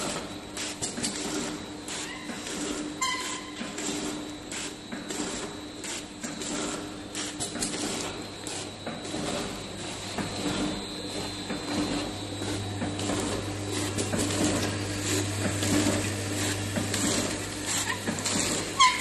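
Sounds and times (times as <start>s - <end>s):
packing machine humming and clattering: 0.0s - 19.0s
high squeak: 3.0s - 3.6s, 18.8s - 19.0s.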